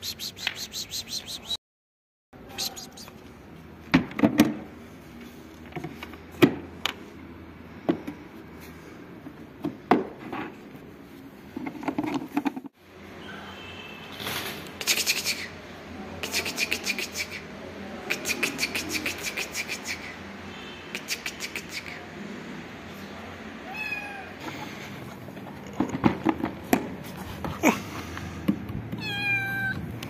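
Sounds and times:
kitten meowing: 23.6s - 24.4s, 29.0s - 29.8s.

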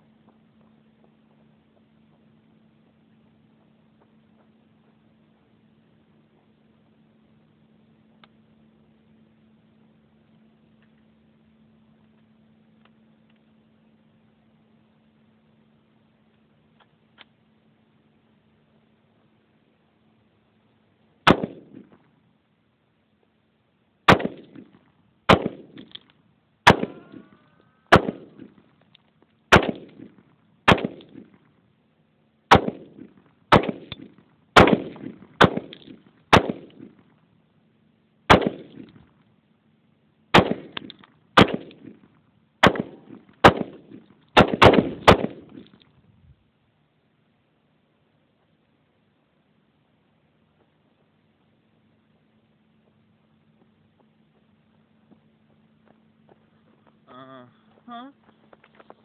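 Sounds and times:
rifle shots with echo: 21.2s - 22.0s, 24.1s - 26.0s, 26.6s - 27.3s, 27.9s - 28.6s, 29.5s - 31.4s, 32.5s - 37.0s, 38.3s - 39.0s, 40.3s - 45.8s.

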